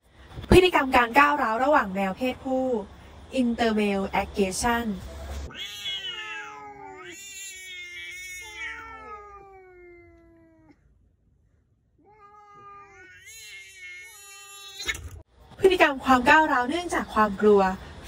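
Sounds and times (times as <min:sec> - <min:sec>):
cats yowling: 0:05.5 - 0:10.8, 0:12.0 - 0:15.0.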